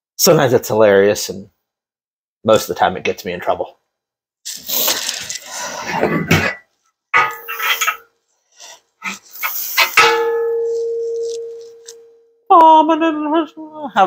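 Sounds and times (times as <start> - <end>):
metallic knocks with ringing: 7.2 - 8.0, 9.8 - 12.1
metal rails scraping and clanking: 7.2 - 8.1.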